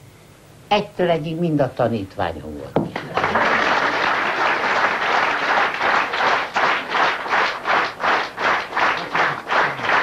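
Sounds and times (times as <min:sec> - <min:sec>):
rhythmic clapping in unison: 0:02.9 - 0:10.0
audience applause: 0:03.0 - 0:10.0.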